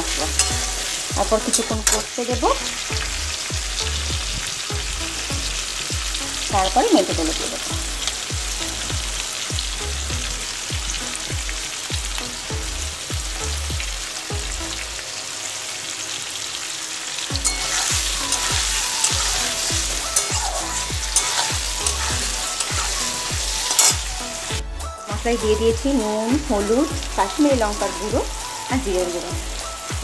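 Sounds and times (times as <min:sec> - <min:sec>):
metal spatula stirring: 0:00.0 - 0:02.2, 0:17.4 - 0:24.5
vegetables sizzling in hot oil: 0:00.0 - 0:30.0.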